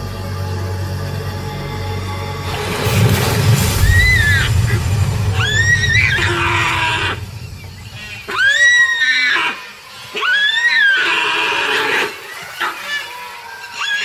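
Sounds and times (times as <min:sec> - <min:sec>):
water splashing: 0:02.4 - 0:10.0.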